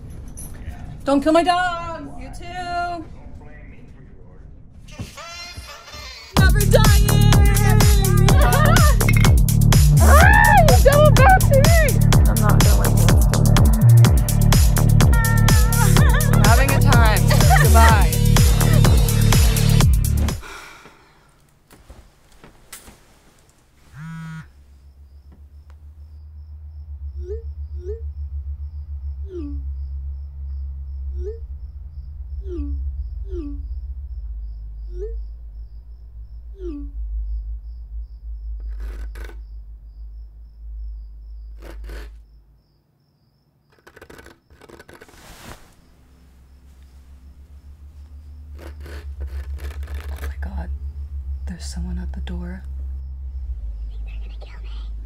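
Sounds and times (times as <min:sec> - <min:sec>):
crickets chirping: 0:06.3 - 0:21.4, 0:23.8 - 0:55.0
low pulsing drone: 0:06.4 - 0:20.4, 0:24.2 - 0:42.6, 0:46.0 - 0:55.0
low rumble: 0:06.4 - 0:20.4, 0:24.6 - 0:42.6, 0:45.9 - 0:55.0
sharp clicks: 0:38.6 - 0:39.4.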